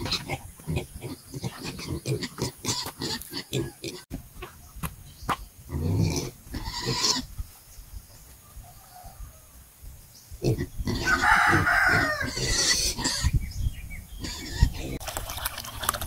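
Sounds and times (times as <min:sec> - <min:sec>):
rooster crowing: 0:08.4 - 0:09.7, 0:11.0 - 0:12.4.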